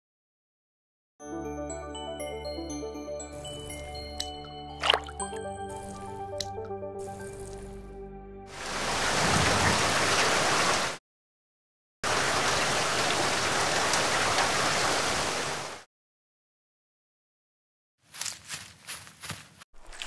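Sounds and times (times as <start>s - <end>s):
heavy rain hissing: 8.5s - 11.0s, 12.1s - 15.8s.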